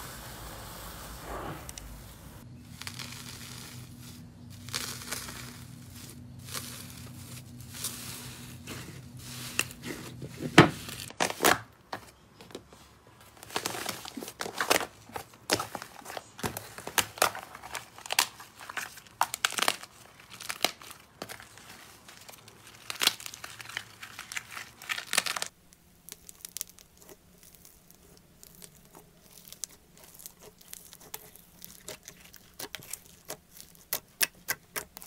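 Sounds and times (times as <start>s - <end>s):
low steady hum: 0.0s - 11.2s
slime crust crackling and tearing: 2.7s - 9.9s, 13.4s - 35.0s
slime crinkling in foil: 2.7s - 11.6s, 13.2s - 35.0s.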